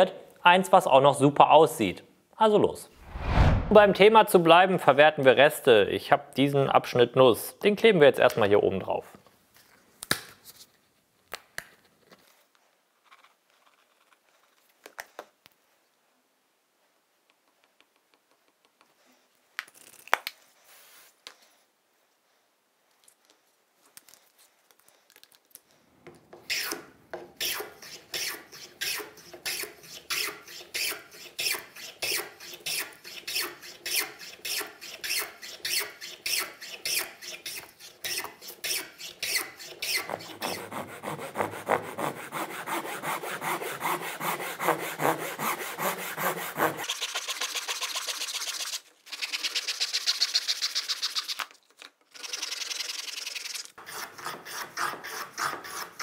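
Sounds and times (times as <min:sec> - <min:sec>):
handsaw cutting wood: 0:26.5 - 0:48.2, 0:53.8 - 0:56.0
hand plane shaving wood: 0:27.4 - 0:48.0, 0:53.8 - 0:56.0.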